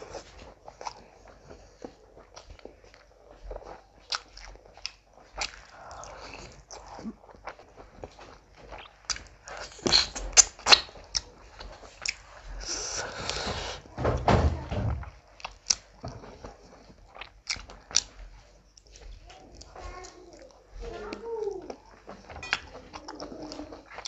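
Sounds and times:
lip smacks and chewing: 0.0 - 13.4, 15.3 - 20.6.

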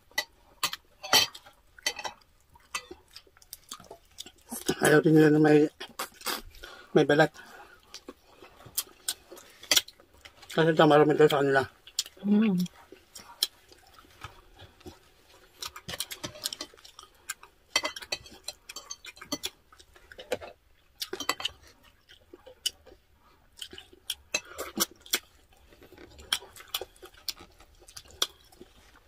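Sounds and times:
people chewing: 0.1 - 29.0.

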